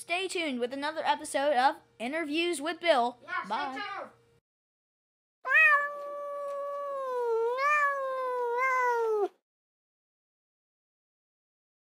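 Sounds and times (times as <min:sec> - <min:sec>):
cat yowling: 0:05.5 - 0:09.4.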